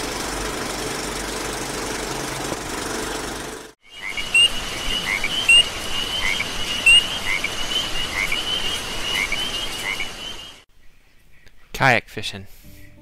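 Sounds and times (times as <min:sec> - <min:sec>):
frogs trilling and chirping: 0:03.8 - 0:10.6.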